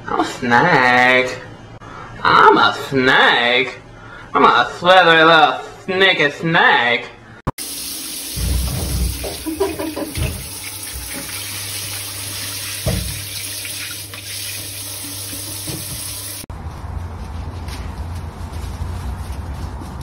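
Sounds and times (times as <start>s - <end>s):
shower spray running: 7.6s - 16.5s.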